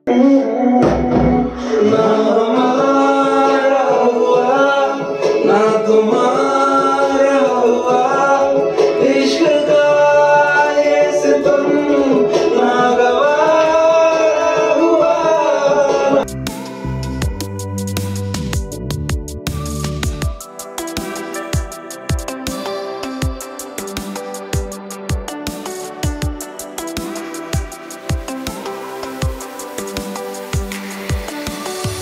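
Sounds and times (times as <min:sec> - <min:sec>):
man singing: 0:00.0 - 0:16.3
instrumental backing: 0:00.0 - 0:32.0.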